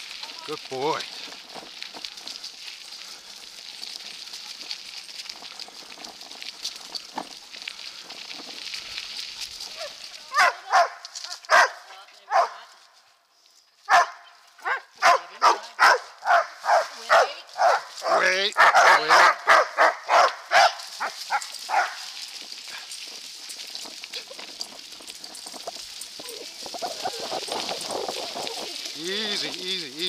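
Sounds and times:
bike tyres hissing on dirt: 0:00.0 - 0:30.0
dogs barking: 0:09.8 - 0:12.6, 0:13.9 - 0:22.9.

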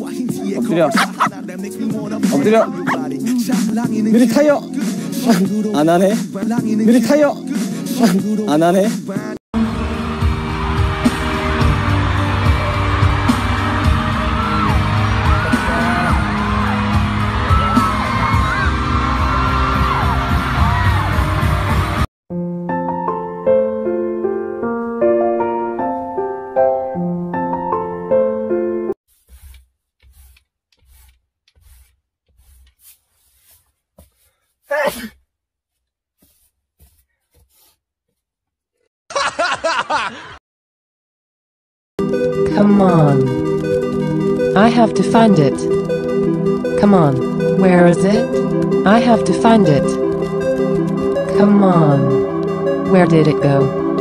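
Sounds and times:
voices laughing: 0:00.8 - 0:01.4
man sneezing: 0:00.9 - 0:01.3, 0:34.7 - 0:35.2
crowd cheering and screaming: 0:09.8 - 0:22.0.

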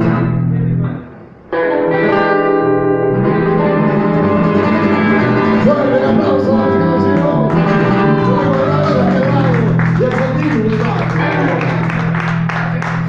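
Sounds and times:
acoustic guitar: 0:00.0 - 0:13.0
electric bass: 0:00.0 - 0:13.0.

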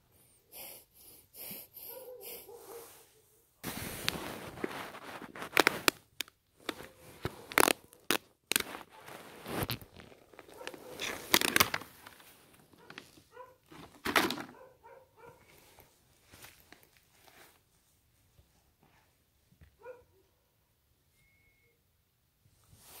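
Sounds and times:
dry grass and soil crunching: 0:04.1 - 0:14.0.

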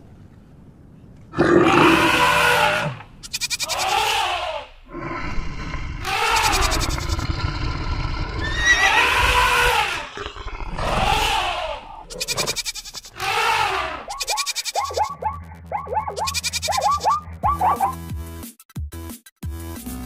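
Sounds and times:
drawn-out animal calls: 0:02.2 - 0:04.6, 0:06.0 - 0:07.2, 0:08.4 - 0:18.0
short falling cries: 0:03.6 - 0:04.7, 0:10.8 - 0:12.0, 0:12.7 - 0:14.2
steady low tones: 0:14.8 - 0:18.0.

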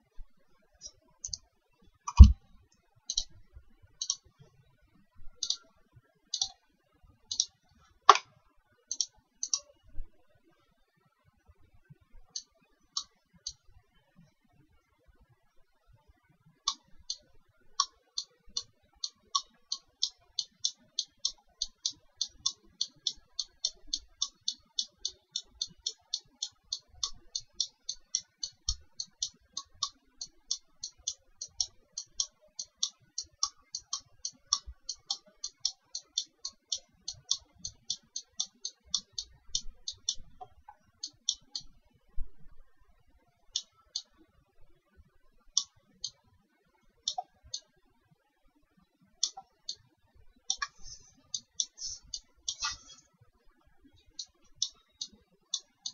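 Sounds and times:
computer mouse clicking: 0:00.8 - 0:01.4, 0:02.1 - 0:02.4, 0:03.1 - 0:03.4, 0:04.0 - 0:04.3, 0:05.4 - 0:05.7, 0:06.3 - 0:06.6, 0:07.3 - 0:08.3, 0:08.9 - 0:09.7, 0:16.6 - 0:41.8, 0:47.0 - 0:47.7, 0:49.2 - 0:49.9, 0:50.5 - 0:53.0, 0:54.0 - 0:55.9.

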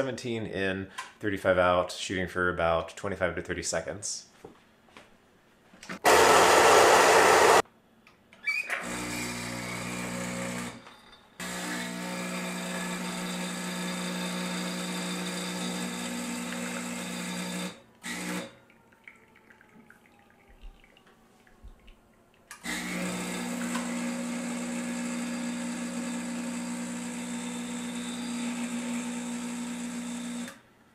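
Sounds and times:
espresso machine hissing rush: 0:06.0 - 0:07.6, 0:22.7 - 0:30.5
espresso machine hum: 0:06.0 - 0:07.6, 0:08.8 - 0:10.7, 0:11.4 - 0:18.4, 0:22.7 - 0:30.6.

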